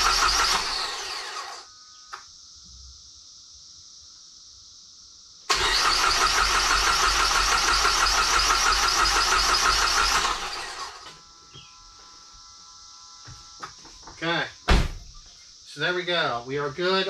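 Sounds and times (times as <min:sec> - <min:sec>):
car engine cranking without firing: 0:00.0 - 0:01.6, 0:05.5 - 0:11.1.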